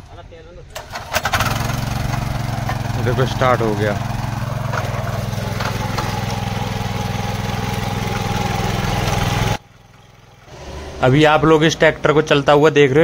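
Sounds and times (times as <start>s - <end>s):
power tiller engine running: 0.8s - 13.0s.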